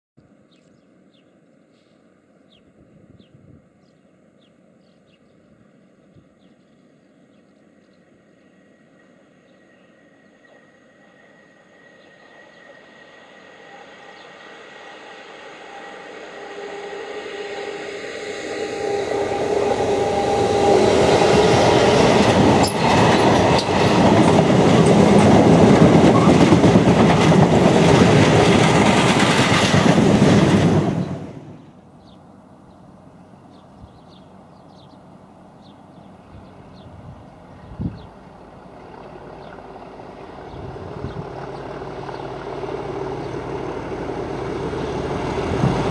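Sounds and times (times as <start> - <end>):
diesel locomotive engine: 4.2 - 45.9
train wheels rushing on rails: 8.6 - 31.8, 36.4 - 45.9.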